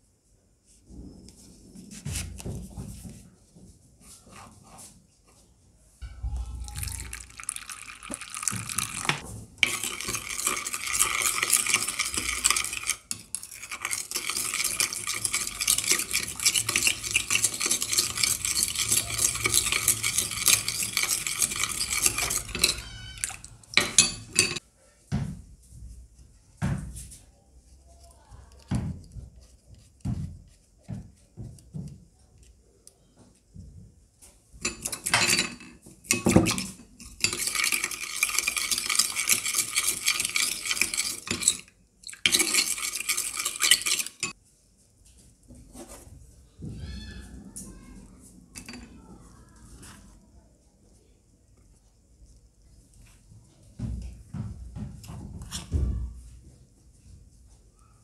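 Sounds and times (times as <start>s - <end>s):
plastic spoon stirring in glass bowl: 6.0s - 24.6s, 28.0s - 32.5s, 34.6s - 44.4s, 48.6s - 50.2s.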